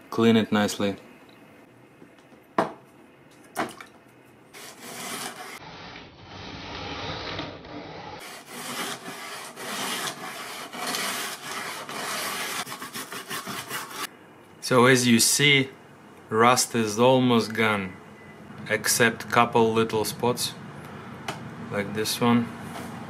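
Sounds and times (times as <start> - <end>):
plastic brush scrubbing metal in water: 8.2 - 14.1.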